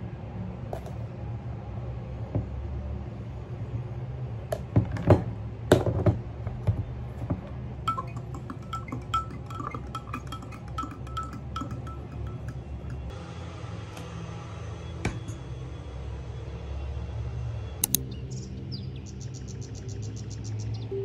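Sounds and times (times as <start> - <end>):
spoon clinking in a glass: 7.9 - 13.1.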